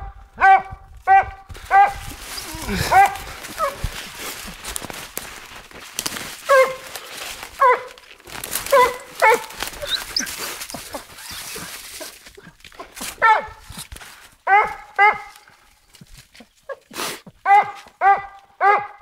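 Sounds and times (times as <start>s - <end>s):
dog yelping barks: 0.0s - 3.8s, 6.4s - 6.9s, 7.6s - 8.0s, 8.6s - 11.4s, 13.2s - 13.6s, 14.4s - 15.4s, 17.4s - 19.0s
brush rustling and twigs crackling: 0.9s - 18.5s.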